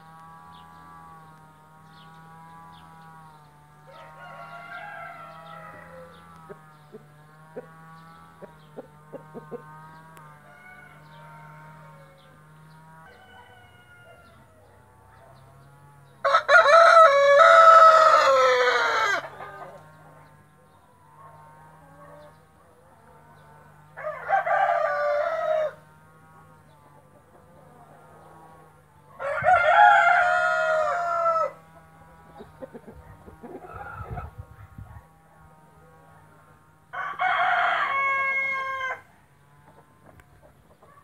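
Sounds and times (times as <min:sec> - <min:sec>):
rooster crowing: 0:03.8 - 0:06.3, 0:10.3 - 0:12.4, 0:13.0 - 0:14.9, 0:16.2 - 0:19.8, 0:23.9 - 0:26.0, 0:29.1 - 0:31.7, 0:36.9 - 0:39.1.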